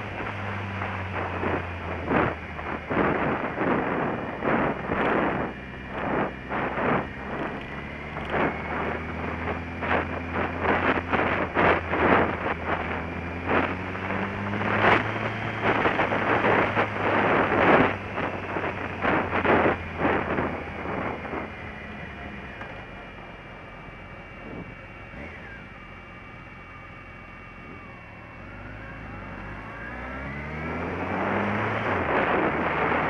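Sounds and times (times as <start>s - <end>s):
wind buffeting microphone: 0.0s - 22.6s, 24.4s - 25.3s, 30.2s - 33.0s
motorcycle engine hum: 0.0s - 33.0s.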